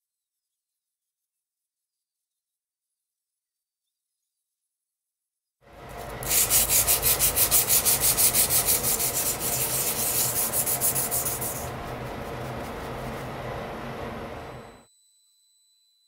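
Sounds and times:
sanding sponge rubbing metal: 6.0s - 13.4s.

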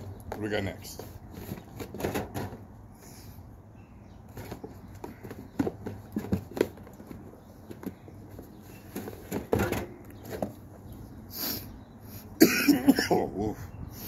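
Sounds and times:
cans knocking against cardboard: 4.3s - 8.1s.

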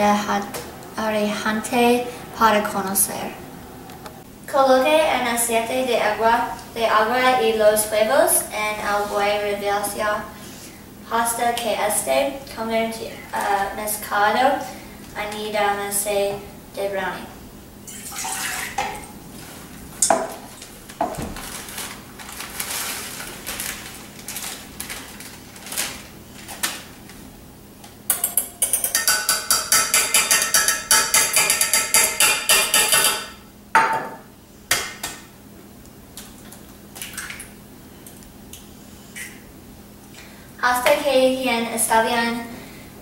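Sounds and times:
metal kitchenware clinking in bowl: 28.1s - 33.3s.

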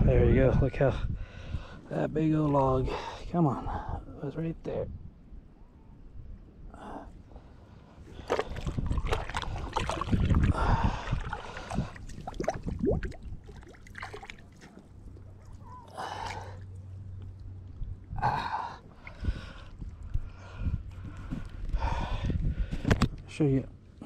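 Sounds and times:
water sloshing around wading legs: 8.0s - 21.6s.

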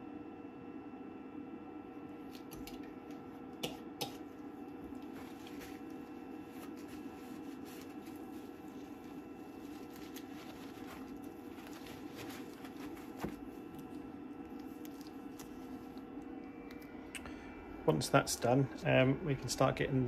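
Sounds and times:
steady low hum: 0.0s - 20.0s
paper towel rustling: 4.8s - 16.0s.

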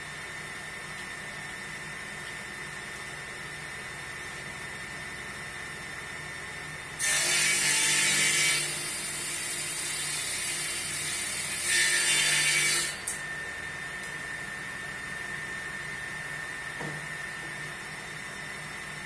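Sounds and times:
table saw idle hum: 0.0s - 19.0s
table saw ripping wood: 7.0s - 13.2s.

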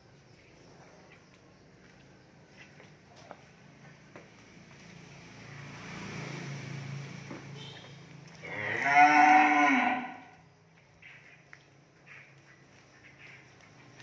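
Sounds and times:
cow mooing: 8.4s - 10.4s.

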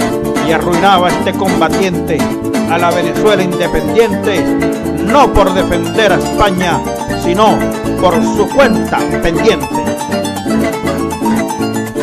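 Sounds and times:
plucked harp and strings: 0.0s - 12.0s
steady bass line: 0.0s - 12.0s.

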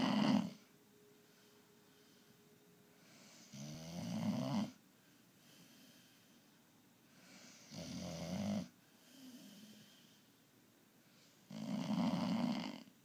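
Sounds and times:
dog snoring: 0.0s - 0.7s, 3.0s - 4.8s, 7.2s - 10.2s, 11.5s - 13.0s
soft dog breath: 0.0s - 3.7s, 4.9s - 7.8s.

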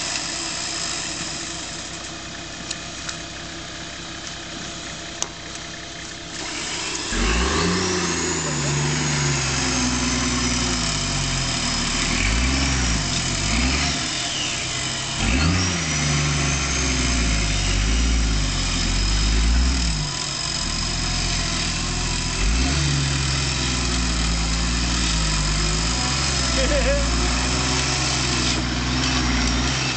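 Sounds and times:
electric winch hauling: 0.0s - 29.9s
vehicle engine running under load: 0.0s - 29.9s.

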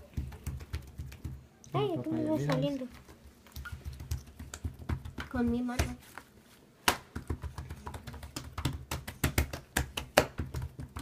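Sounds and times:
hands patting slime on wood: 3.5s - 11.0s.

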